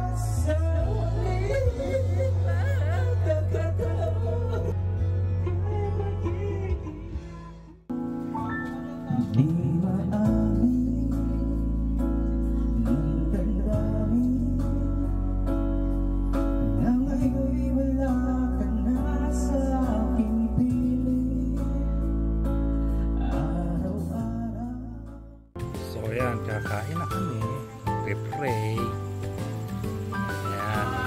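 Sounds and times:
person singing into a microphone: 0.0 - 7.7, 9.0 - 25.3
guitar-led backing track: 0.0 - 31.0.

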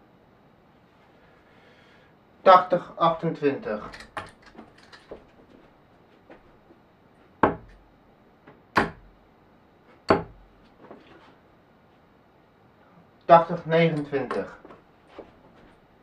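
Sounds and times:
darts striking dartboard: 7.4 - 7.8, 8.5 - 9.1, 10.1 - 10.4.

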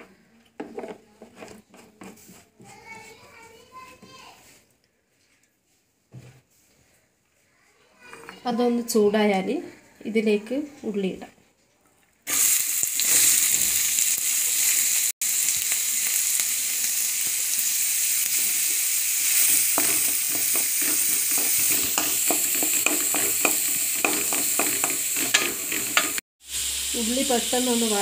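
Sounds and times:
onions sizzling in hot oil: 12.3 - 28.0
spatula scraping a metal pot: 19.4 - 26.2.

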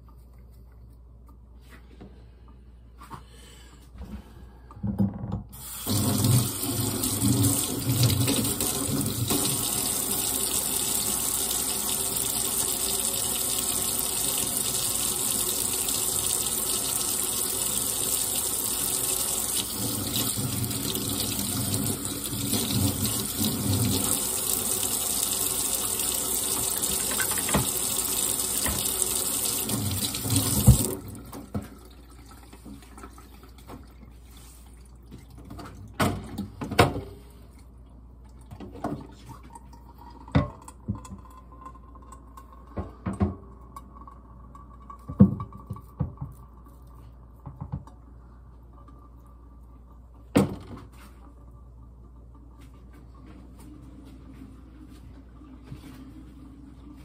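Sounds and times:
tap water pouring into sink: 5.6 - 34.1.

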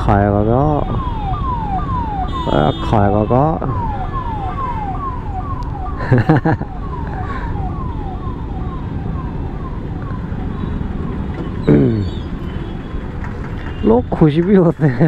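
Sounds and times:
road traffic rumble: 0.0 - 15.0
electronic siren sweeping: 0.5 - 12.4.

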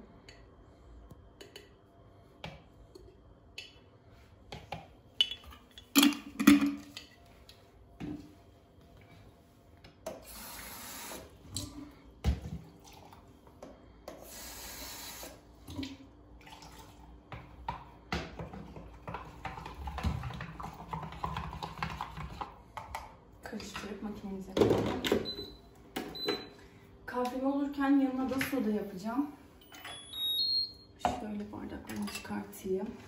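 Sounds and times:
kitchenware clinking: 5.2 - 7.1
kitchen tap running: 14.2 - 17.0.

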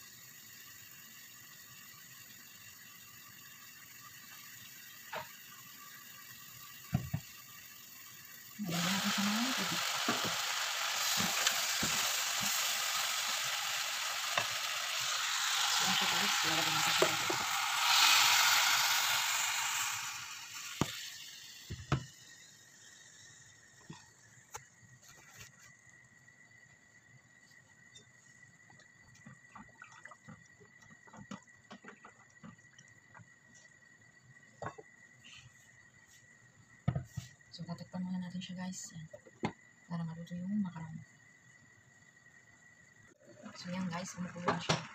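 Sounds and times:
food sizzling in a saucepan: 0.0 - 24.4.

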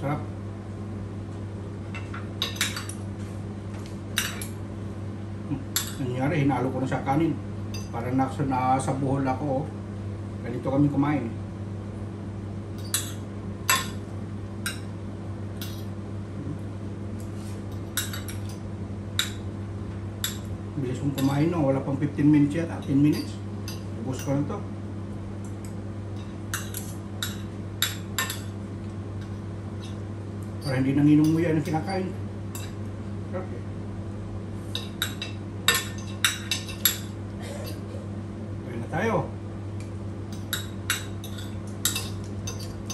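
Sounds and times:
steady low hum: 0.0 - 42.9
cutlery clinking on plate: 40.4 - 42.9.

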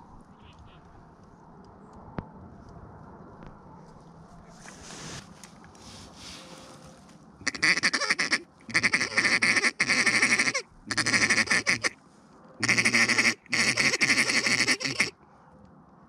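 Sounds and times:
duck call quacking: 7.4 - 12.0, 12.6 - 15.2.

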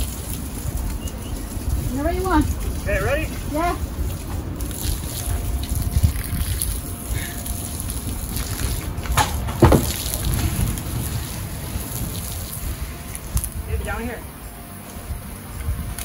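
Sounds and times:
fire rumbling: 0.0 - 16.0
hose spraying water on flames: 0.0 - 16.0
burning wood thudding on ground: 9.0 - 10.6.

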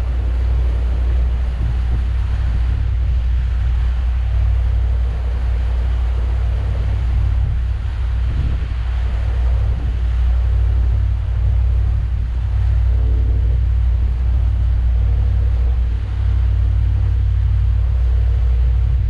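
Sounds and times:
boat engine droning: 0.0 - 19.0
wind and water hiss: 0.0 - 19.0.

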